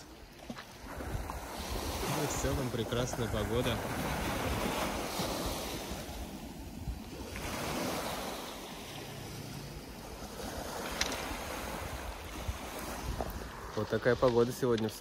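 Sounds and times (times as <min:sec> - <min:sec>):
waves breaking on pebble beach: 0:00.0 - 0:15.0.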